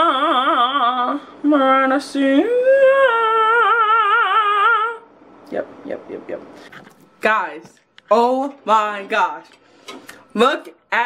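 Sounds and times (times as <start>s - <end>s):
woman singing with vibrato: 0.0s - 5.2s.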